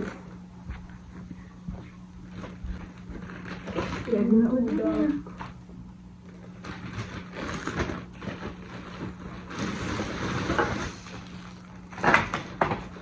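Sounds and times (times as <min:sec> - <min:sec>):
plastic packaging crinkling: 0:02.2 - 0:05.6, 0:06.2 - 0:13.0.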